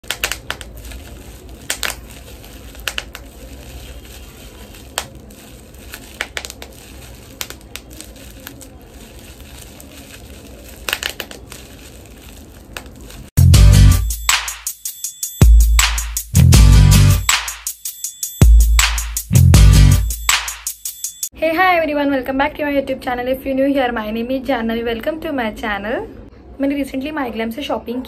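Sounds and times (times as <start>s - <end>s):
bubble wrap crinkling: 0.0s - 13.4s
bubble wrap popping: 0.0s - 13.4s.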